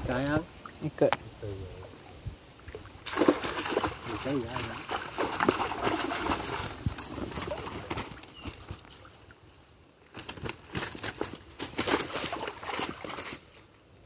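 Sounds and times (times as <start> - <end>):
fish thrashing and splashing water: 2.7 - 9.1, 10.2 - 13.4.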